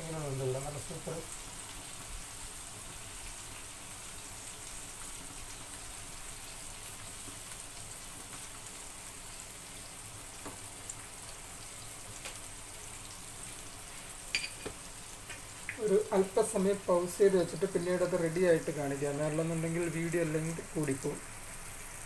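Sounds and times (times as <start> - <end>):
fish frying in oil: 0.0 - 22.0.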